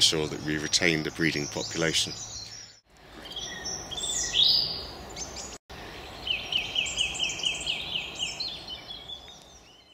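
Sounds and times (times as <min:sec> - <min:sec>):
outdoor background hiss: 0:00.0 - 0:09.9
songbirds singing: 0:00.0 - 0:09.9.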